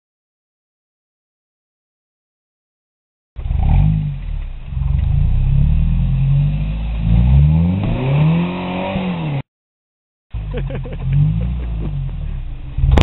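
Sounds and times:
truck engine revving: 3.4s - 9.4s, 10.4s - 13.0s.

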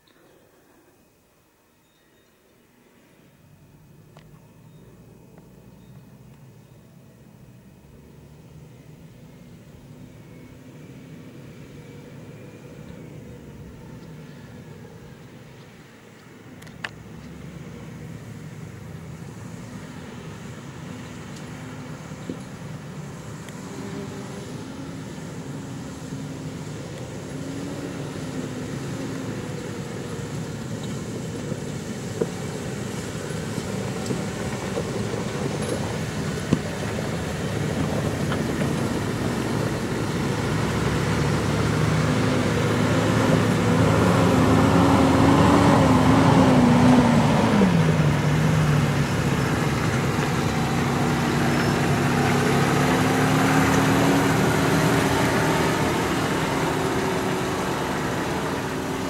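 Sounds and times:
engines driving past on gravel: 16.6s - 59.0s.

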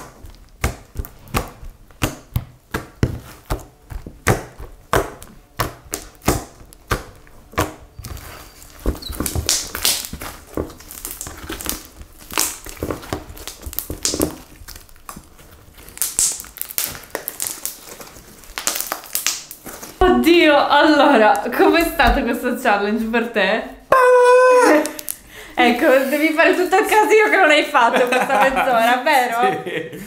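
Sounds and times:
slime smacking on table: 0.0s - 7.9s
slime squelching and popping: 0.0s - 20.0s, 24.7s - 25.2s.

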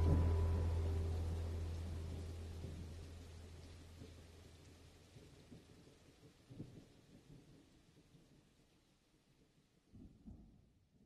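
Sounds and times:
low sustained music note: 0.0s - 5.5s.

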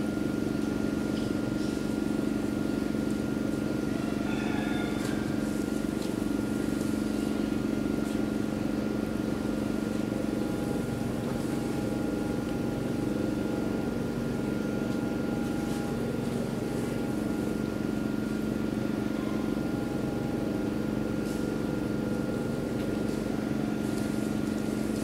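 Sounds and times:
mechanical hum: 0.0s - 25.0s.

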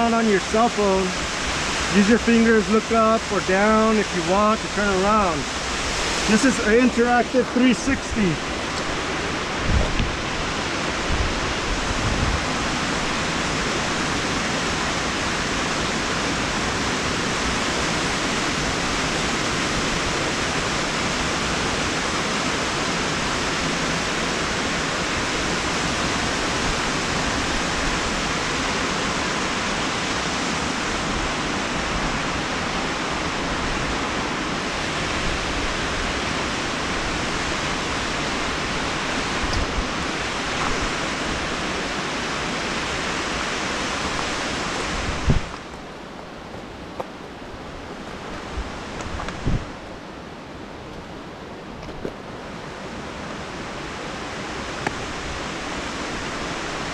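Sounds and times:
waterfall rushing over rocks: 0.0s - 56.9s.

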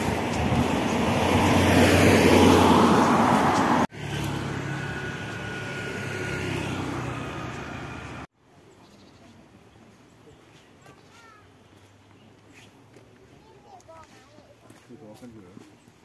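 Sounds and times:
motorcycle: 0.0s - 8.3s
vehicle passing close by: 0.0s - 8.3s
traffic engine hum: 0.0s - 8.7s.

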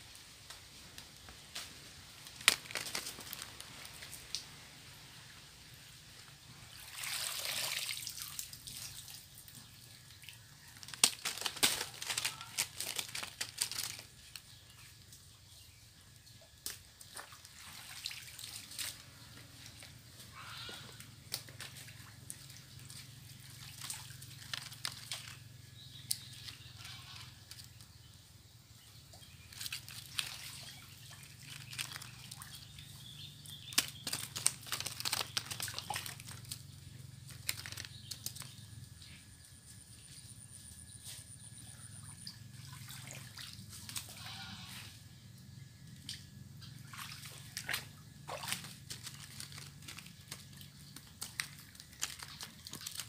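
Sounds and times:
muddy water sloshing and splashing: 6.6s - 14.0s, 16.9s - 27.1s, 29.2s - 38.5s, 42.0s - 44.3s, 46.0s - 53.0s.

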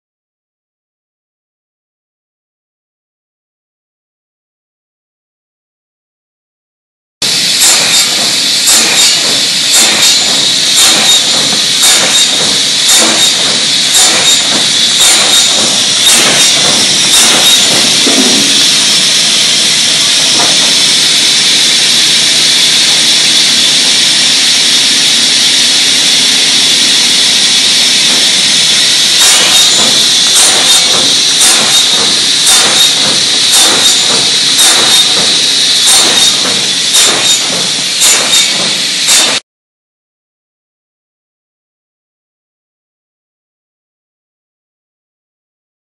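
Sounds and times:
cut-off saw whine: 7.2s - 39.4s.

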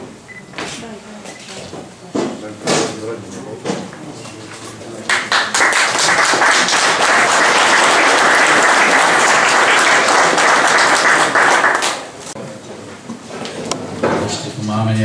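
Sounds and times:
audience applauding: 5.1s - 12.3s.

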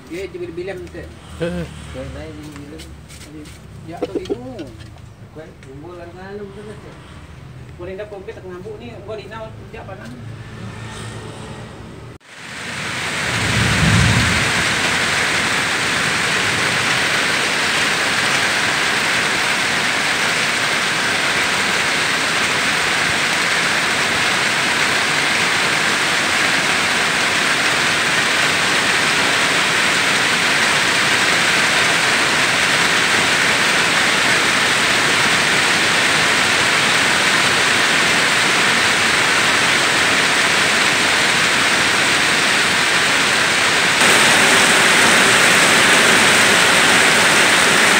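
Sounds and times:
heavy rain on metal roof: 12.2s - 47.9s.

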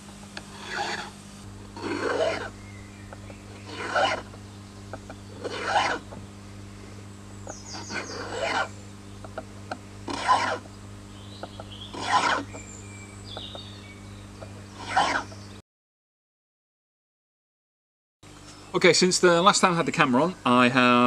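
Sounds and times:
file rasping across wooden handle: 0.4s - 1.2s, 1.8s - 2.6s, 3.2s - 4.4s, 5.0s - 6.2s, 7.5s - 8.8s, 10.1s - 10.7s, 11.4s - 12.6s, 14.8s - 15.4s.

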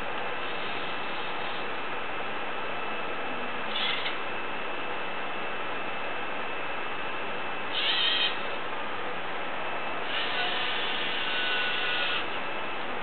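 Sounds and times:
electric servo motors whining: 3.7s - 4.2s, 7.7s - 8.5s, 10.0s - 12.4s.

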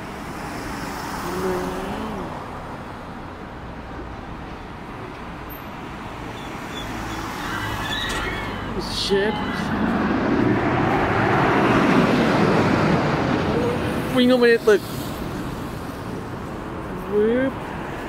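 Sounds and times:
road traffic passing: 0.0s - 18.0s.

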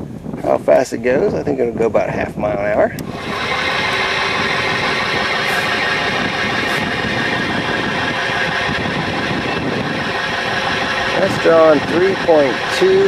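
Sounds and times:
electric motor humming: 3.0s - 13.0s.

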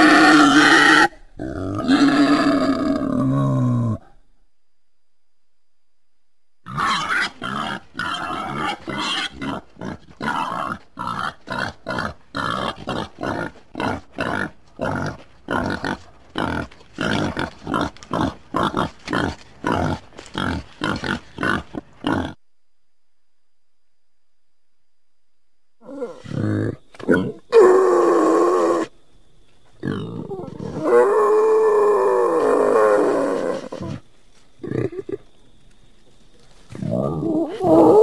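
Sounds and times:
wild boar grunting: 0.0s - 4.2s, 6.7s - 22.4s, 29.8s - 35.3s.

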